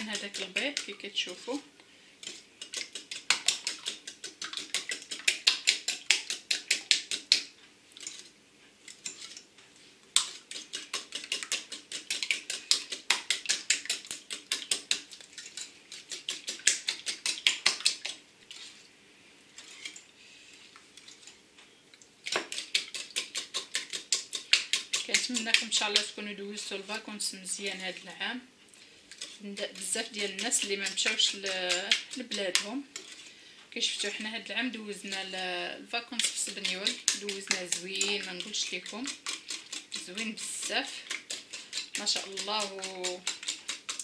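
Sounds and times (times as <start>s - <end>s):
whisk beating eggs in bowl: 0.0s - 1.4s, 2.2s - 7.5s, 10.2s - 18.2s, 22.3s - 27.0s, 29.1s - 44.0s.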